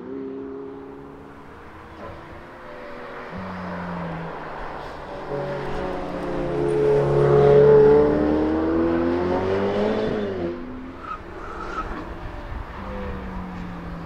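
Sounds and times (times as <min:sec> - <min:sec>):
car engine accelerating past: 0:01.5 - 0:10.6.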